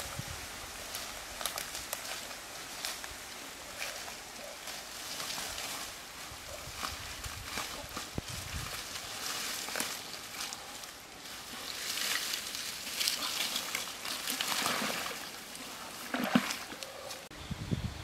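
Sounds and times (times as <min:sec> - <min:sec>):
dry grass rustling and snapping: 0:00.0 - 0:17.3
foot splashing in water: 0:11.8 - 0:16.9.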